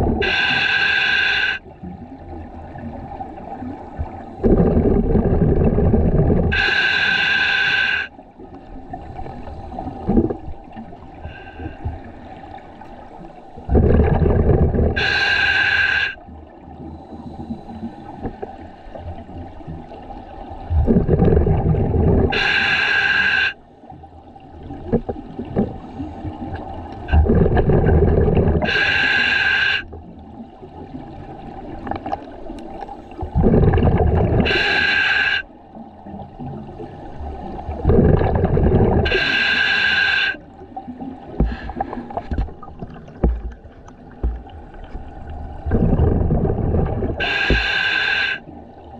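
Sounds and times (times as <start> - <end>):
rush of bubbles: 4.4 - 6.7, 13.6 - 15.6, 20.7 - 23.0, 27.1 - 30.0, 33.2 - 35.4, 37.4 - 40.3, 41.3 - 48.9.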